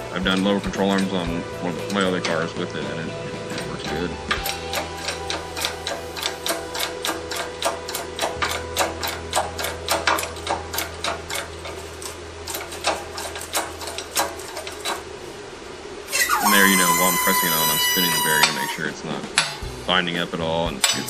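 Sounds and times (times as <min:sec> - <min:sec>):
low hum: 0:00.0 - 0:21.0
metallic clicks of jack pumping: 0:03.5 - 0:15.1, 0:16.1 - 0:19.7, 0:20.7 - 0:21.0.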